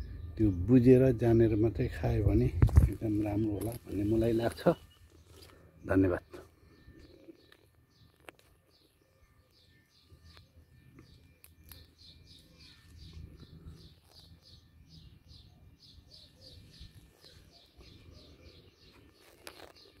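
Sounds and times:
small bird chirping: 6.6s - 20.0s.

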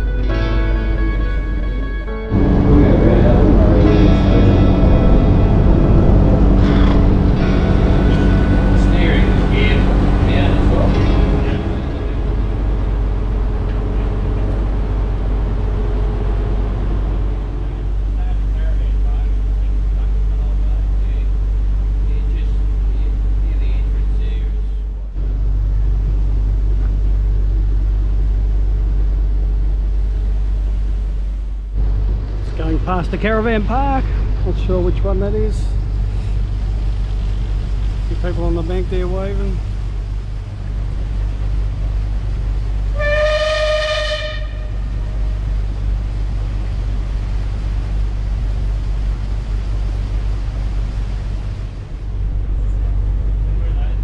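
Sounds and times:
boat engine rumbling: 0.0s - 54.0s
steamer whistle blast: 42.9s - 45.2s.

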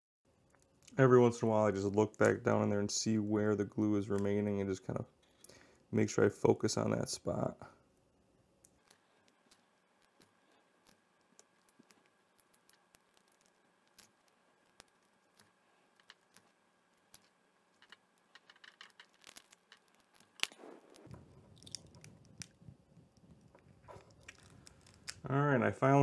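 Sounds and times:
handling noise: 8.8s - 25.3s.

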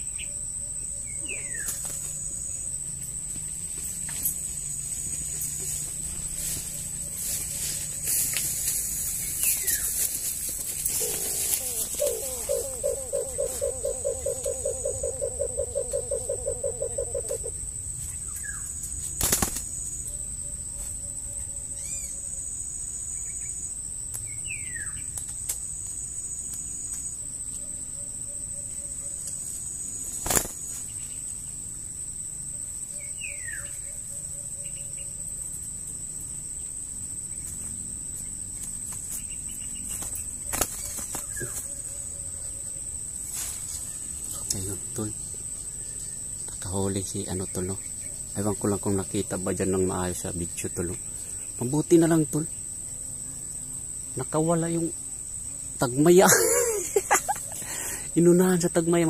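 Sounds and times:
high insect drone: 0.0s - 59.0s
falling bird chirps: 8.5s - 19.9s
bird pulsing notes: 10.8s - 17.6s.

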